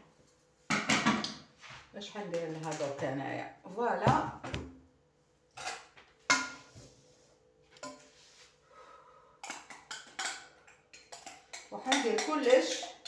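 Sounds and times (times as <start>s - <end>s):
pots and utensils clinking: 5.6s - 6.8s, 7.8s - 8.2s, 9.4s - 13.0s.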